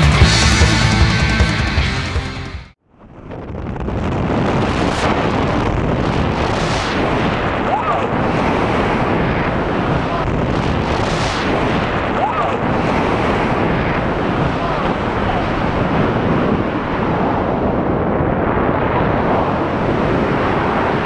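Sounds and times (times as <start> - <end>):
wind rushing over microphone: 2.9 - 21.0.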